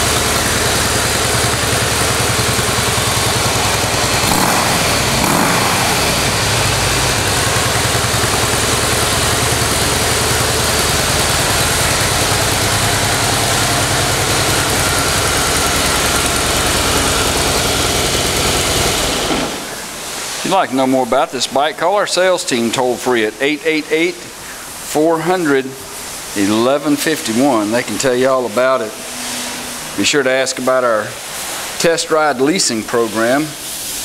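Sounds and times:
motorcycle engine idling: 0.0s - 19.8s.

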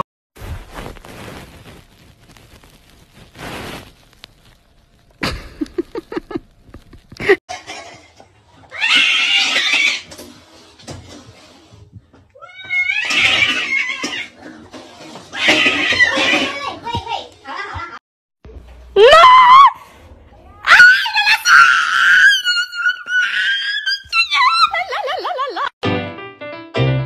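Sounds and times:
cat harsh cry: 8.7s - 10.1s, 12.4s - 14.4s, 15.3s - 16.6s
knocks and rustles: 10.1s - 12.3s.

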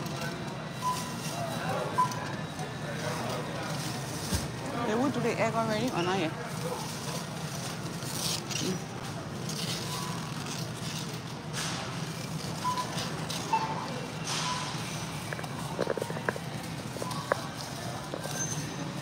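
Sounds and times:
steady store hum: 0.0s - 19.0s
barcode scanner beeps: 0.7s - 2.6s, 12.6s - 15.2s.

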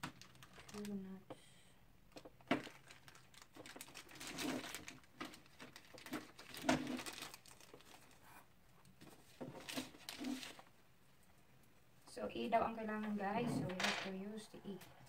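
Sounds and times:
plastic bag crinkling: 0.0s - 1.1s, 2.1s - 8.4s, 9.3s - 10.7s.

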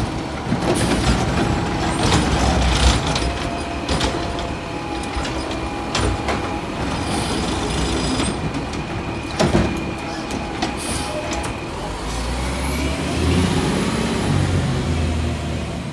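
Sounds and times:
loader arm running: 0.0s - 14.5s
garbage truck engine running: 0.0s - 15.9s
truck engine revving: 11.2s - 15.9s.

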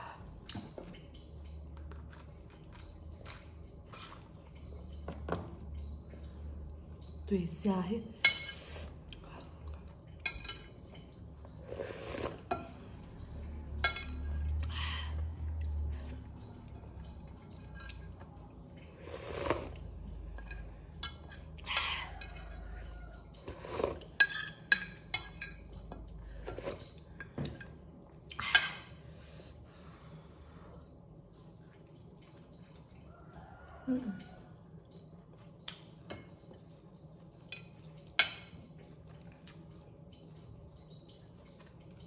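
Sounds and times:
person chewing: 0.4s - 4.8s
person sipping: 11.6s - 12.5s, 19.0s - 19.8s.

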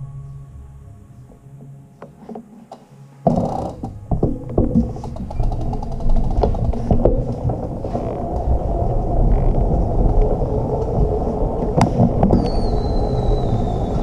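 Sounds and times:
bicycle rolling over concrete: 3.7s - 14.0s.

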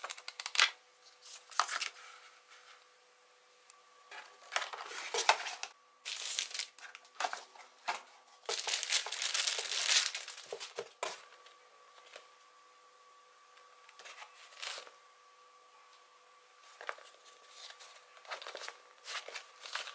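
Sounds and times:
plastic bag crinkling: 6.1s - 7.0s, 8.4s - 10.8s.

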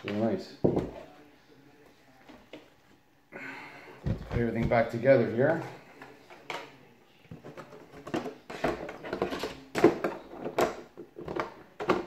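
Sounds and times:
plastic knocks and clicks: 7.3s - 12.0s.

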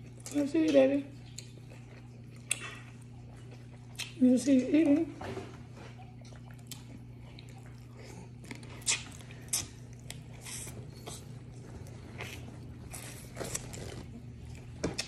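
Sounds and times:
chewing: 0.0s - 4.2s, 5.6s - 15.0s
steady low hum: 0.0s - 15.0s.

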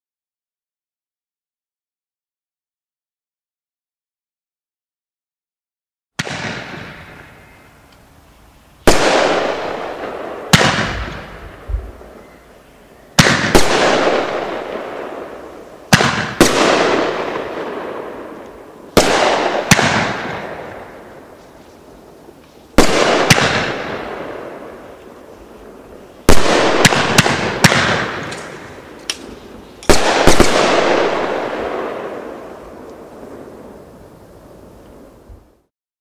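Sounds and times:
firework shells banging: 26.3s - 32.2s.

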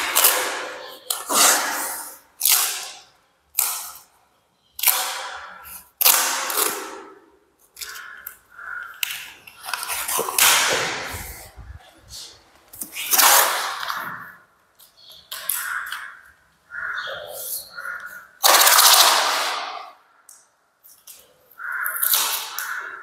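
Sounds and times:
masking tape pulled off roll: 0.0s - 3.0s, 12.8s - 14.0s.

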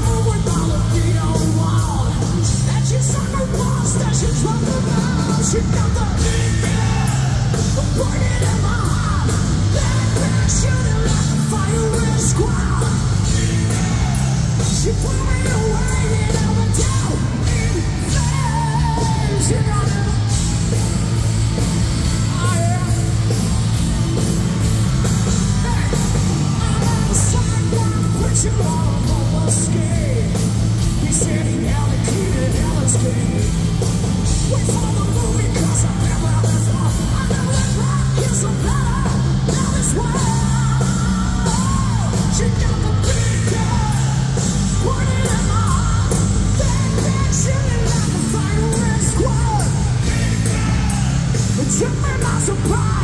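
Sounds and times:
man shouting vocals: 0.0s - 20.5s, 34.4s - 53.0s
bass guitar: 0.0s - 53.0s
distorted electric guitars: 0.0s - 53.0s
drums: 0.0s - 53.0s.

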